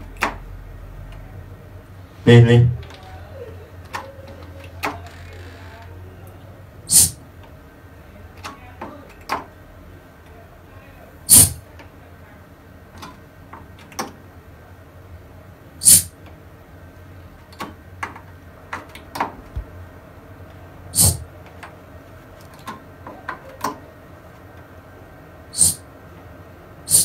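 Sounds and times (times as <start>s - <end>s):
sharp bursts into microphone: 6.9s - 7.2s, 11.3s - 11.6s, 15.8s - 16.2s, 20.9s - 21.3s, 25.5s - 25.9s.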